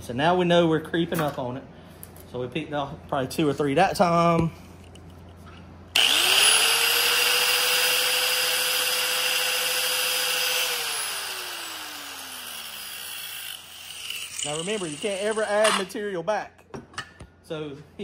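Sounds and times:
grinder whining: 0:06.0 - 0:15.9.

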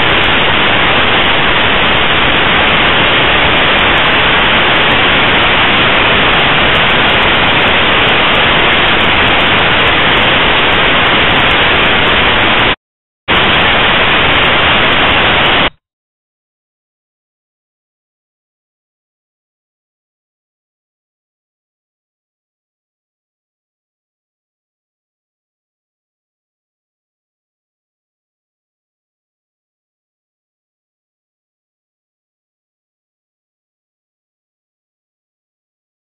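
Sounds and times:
loud static hiss: 0:00.0 - 0:15.8.

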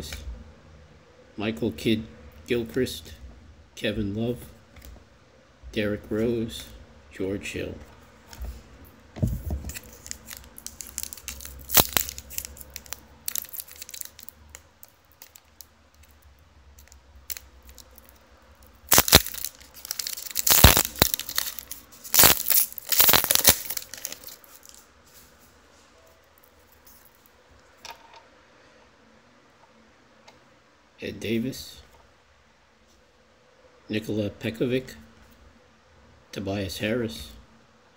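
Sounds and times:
wrapper tearing and crinkling: 0:09.7 - 0:16.2, 0:16.8 - 0:24.8.

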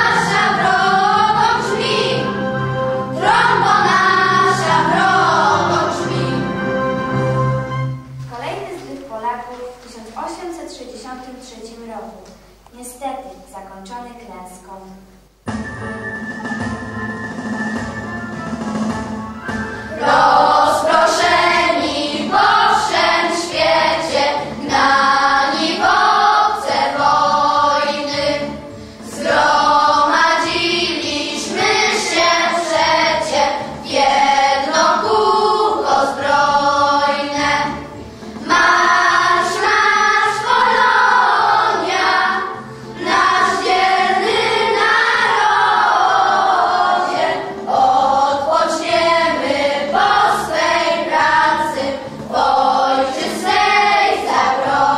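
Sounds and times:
children's choir singing: 0:00.0 - 0:08.0, 0:19.5 - 0:54.9.

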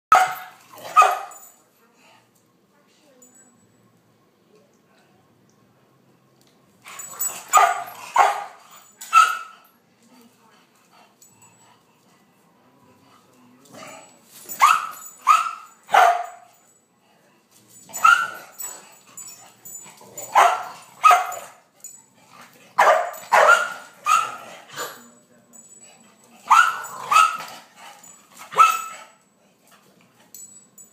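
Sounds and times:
dog barking: 0:00.1 - 0:01.4, 0:07.5 - 0:09.5, 0:14.6 - 0:16.5, 0:18.0 - 0:18.4, 0:20.3 - 0:21.6, 0:22.8 - 0:24.5, 0:26.5 - 0:27.5, 0:28.5 - 0:29.1.

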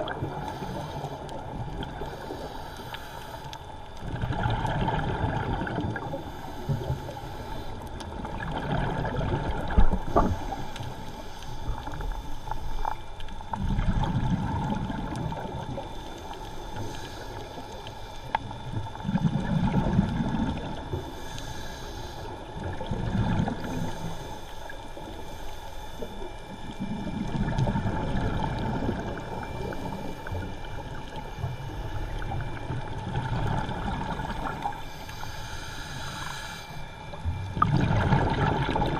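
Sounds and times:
bubbles gurgling: 0:00.0 - 0:00.4, 0:04.0 - 0:06.2, 0:08.1 - 0:10.3, 0:13.5 - 0:15.9, 0:18.8 - 0:21.0, 0:22.6 - 0:23.9, 0:26.7 - 0:34.8, 0:37.3 - 0:38.9
diver breathing through regulator: 0:00.1 - 0:03.8, 0:06.0 - 0:08.1, 0:09.9 - 0:13.1, 0:15.8 - 0:19.6, 0:20.9 - 0:27.1, 0:34.1 - 0:37.2.

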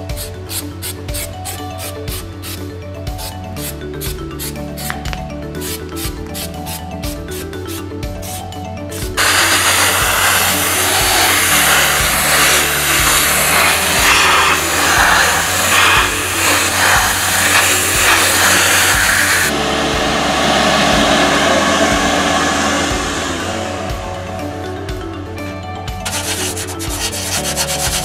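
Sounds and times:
background music: 0:00.0 - 0:28.0
abrasive blaster hissing on metal: 0:09.2 - 0:19.5.

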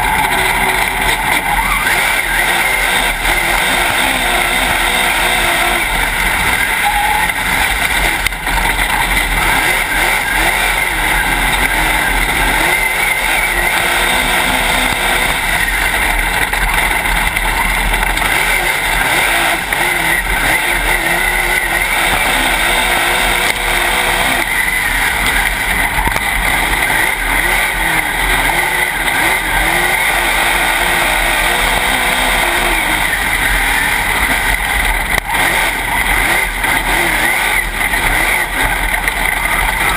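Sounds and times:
race car engine revving: 0:00.0 - 0:39.9.

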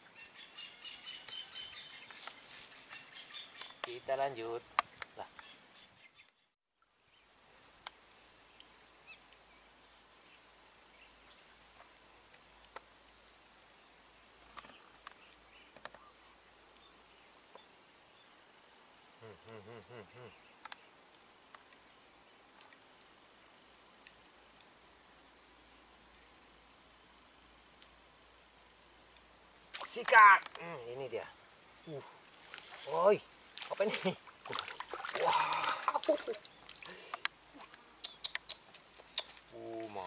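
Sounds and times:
insects droning: 0:00.0 - 0:40.0
faint clicks: 0:20.6 - 0:20.8, 0:36.6 - 0:39.4.

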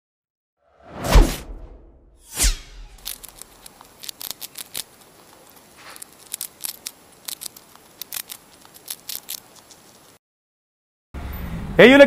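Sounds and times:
soft swish: 0:00.8 - 0:03.0.

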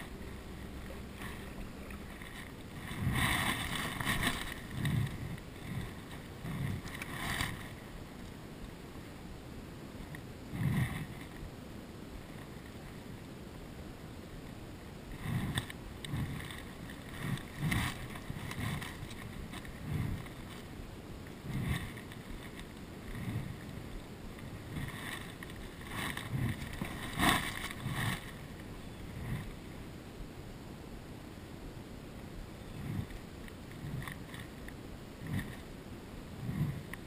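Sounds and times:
water lapping: 0:00.0 - 0:08.3, 0:15.0 - 0:29.8.

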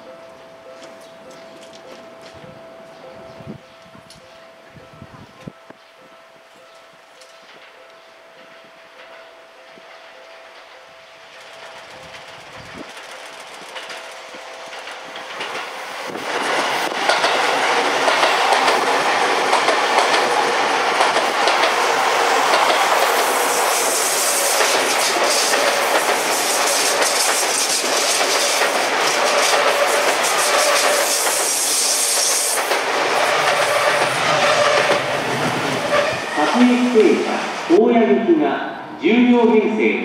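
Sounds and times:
electric train passing: 0:00.0 - 0:40.0
train wheels clattering on rail joints: 0:06.7 - 0:36.3.

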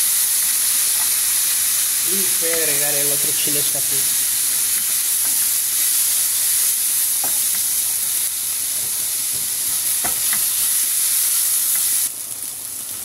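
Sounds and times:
onion sizzling in frying pan: 0:00.0 - 0:13.0.

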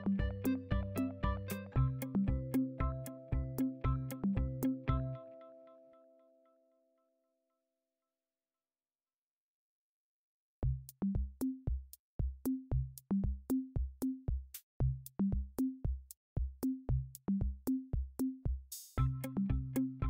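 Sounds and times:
drum machine beat: 0:00.0 - 0:05.2, 0:10.6 - 0:20.0.

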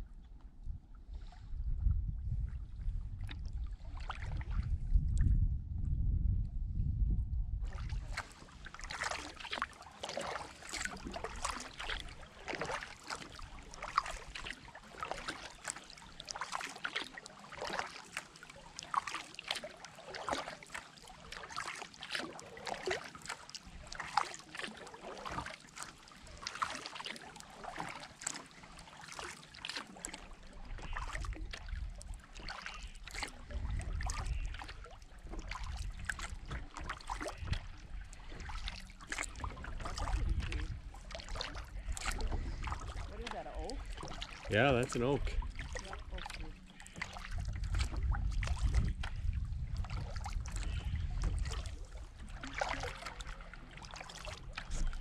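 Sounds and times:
low rumble: 0:00.0 - 0:08.2
water trickling along hull: 0:00.0 - 0:55.0
paddle splashing water: 0:02.2 - 0:05.2, 0:07.6 - 0:55.0.

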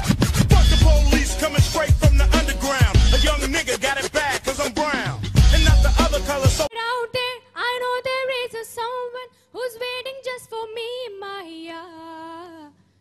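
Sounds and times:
loud hip-hop music: 0:00.0 - 0:06.7
woman singing into a microphone: 0:06.7 - 0:12.8.

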